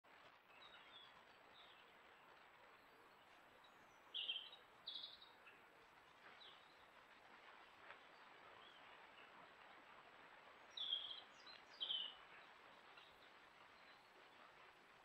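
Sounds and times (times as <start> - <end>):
faint outdoor hiss: 0.1 - 15.0
bird chirps: 2.8 - 5.6, 10.7 - 14.5.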